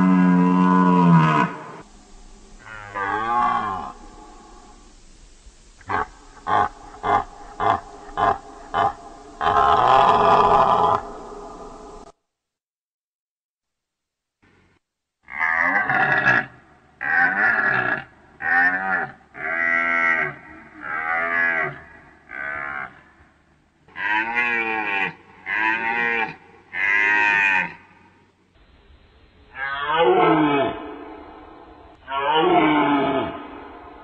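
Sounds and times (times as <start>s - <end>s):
deer groaning call: 0.0s - 1.9s, 2.5s - 4.8s, 5.8s - 12.0s, 23.9s - 27.8s, 29.5s - 33.9s.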